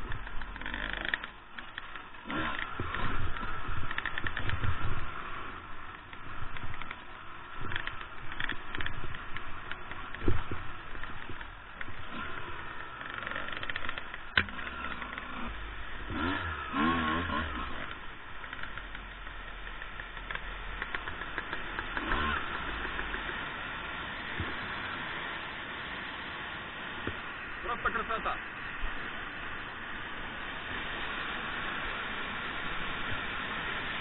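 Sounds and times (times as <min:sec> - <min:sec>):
motorcycle engine revving: 0:00.0 - 0:25.5.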